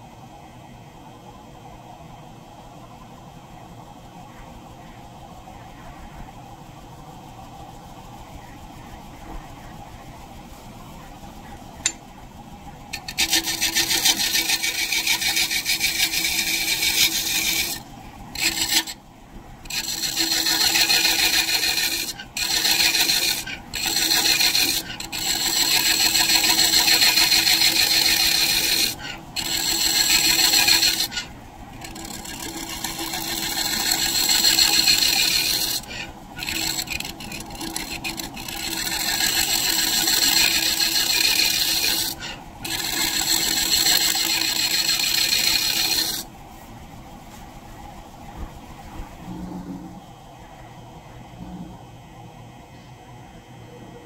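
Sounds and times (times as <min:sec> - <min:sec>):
lathe motor hum: 0:11.2 - 0:46.6
lathe tool scraping wood: 0:12.8 - 0:19.0, 0:19.6 - 0:46.3.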